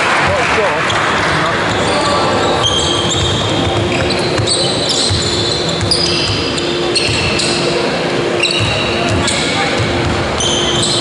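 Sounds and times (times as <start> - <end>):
shoes squeaking on court floor: 0.8 - 11.0
basketball bouncing: 3.1 - 7.4.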